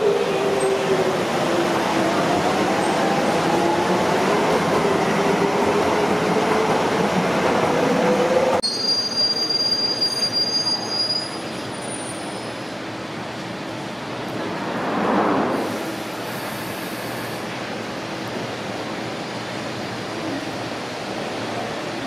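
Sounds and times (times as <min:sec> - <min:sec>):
train wheel squeal: 0:08.6 - 0:12.7.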